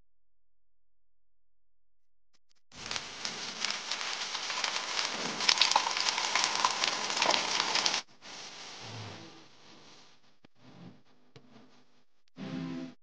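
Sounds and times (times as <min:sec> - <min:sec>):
deep-frying sizzle with crackles: 0:02.8 - 0:08.8.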